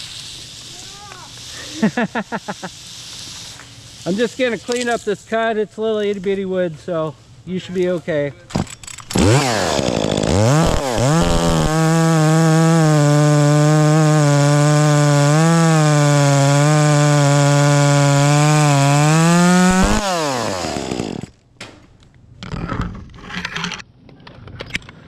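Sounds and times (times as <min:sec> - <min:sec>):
chainsaw revving and cutting wood: 0:09.1 - 0:21.3.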